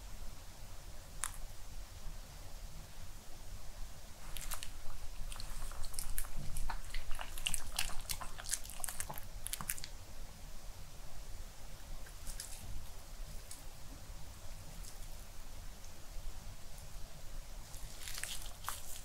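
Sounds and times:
dog crunching food: 4.2 - 10.0, 12.0 - 12.7, 17.7 - 19.0.

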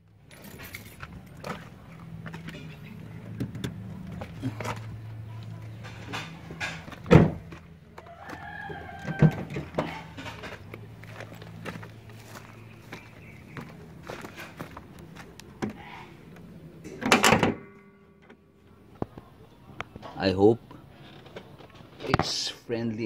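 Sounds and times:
low steady hum: 0.0 - 20.0
footsteps on dirt and grass: 0.9 - 16.4
rooster crowing: 7.9 - 10.2.

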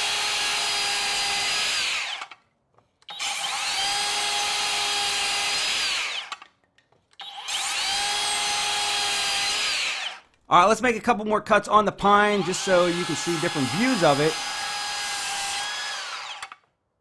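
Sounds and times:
circular saw cutting board: 12.1 - 16.6.

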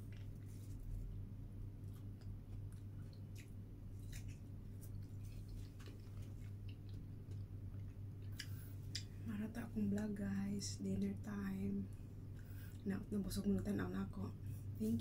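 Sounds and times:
person chewing food: 0.0 - 9.2
steady low hum: 0.0 - 15.0.

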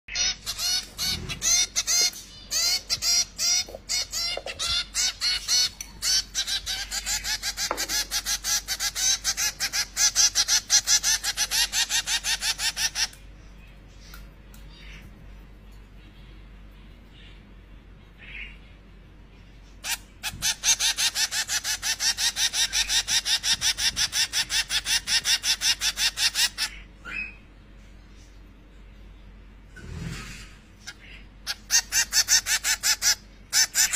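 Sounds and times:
finch chicks begging calls: 0.1 - 13.2, 19.8 - 27.4, 30.8 - 33.9.

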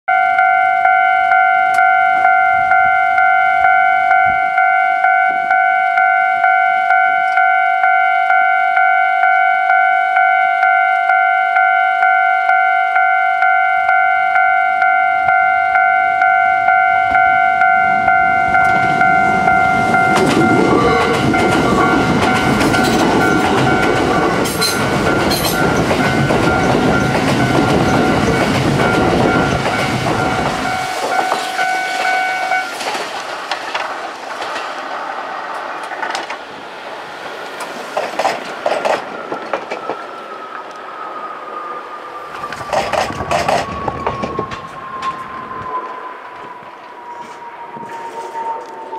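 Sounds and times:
level-crossing warning bell: 0.1 - 34.7, 39.0 - 48.9
train wheels clattering over rails: 18.7 - 36.5, 37.2 - 40.2, 42.3 - 45.2.

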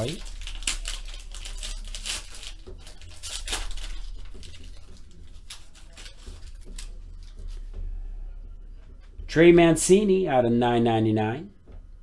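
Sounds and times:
foil wrapper crinkling and tearing: 0.0 - 7.6.

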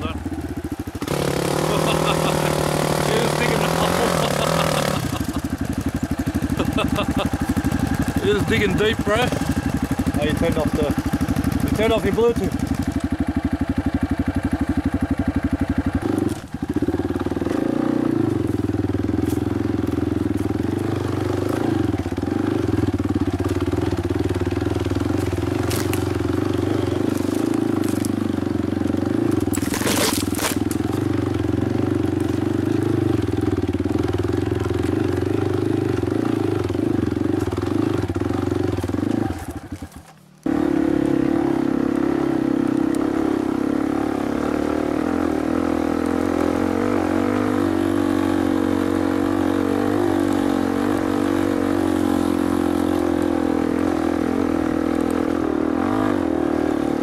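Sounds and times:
dirt bike engine running: 0.0 - 57.0.

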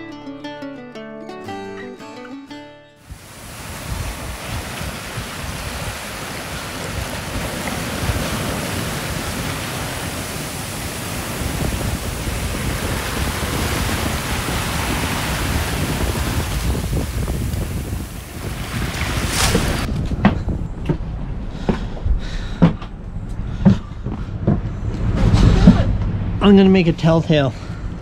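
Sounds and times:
waves rushing past hull: 3.0 - 19.9
wind buffeting microphone: 3.1 - 22.6.

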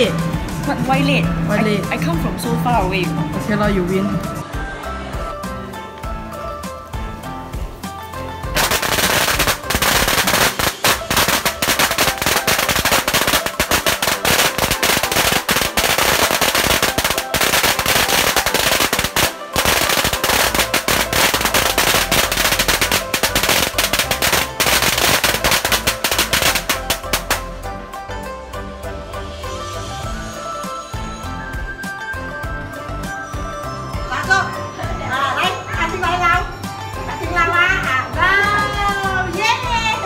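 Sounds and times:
firecrackers crackling: 8.5 - 27.6.

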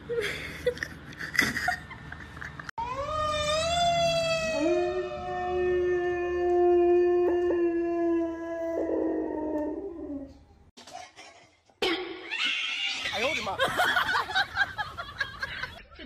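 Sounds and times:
dog howling: 2.8 - 10.4.

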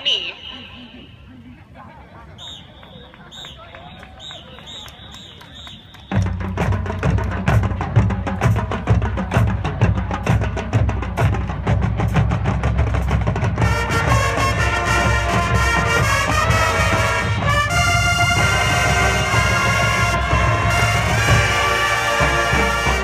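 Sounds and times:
drumline groove: 2.8 - 23.0
marching band playing: 2.8 - 23.0
loud brass section: 13.6 - 23.0.

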